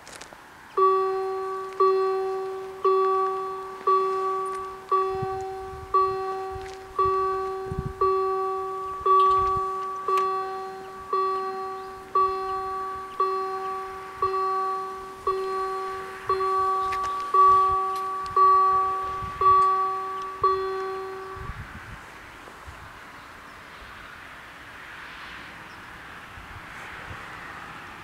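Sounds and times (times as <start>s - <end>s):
level crossing warning bell: 0.7s - 21.8s.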